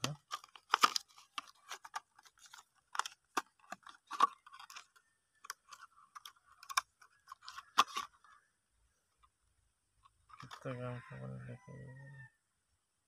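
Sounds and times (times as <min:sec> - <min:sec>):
plastic packaging crackling: 0:00.0 - 0:08.1.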